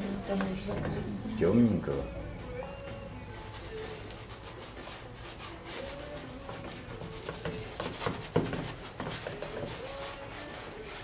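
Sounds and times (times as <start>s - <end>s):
bristle brush scrubbing canvas: 0.0s - 0.8s, 3.4s - 11.0s.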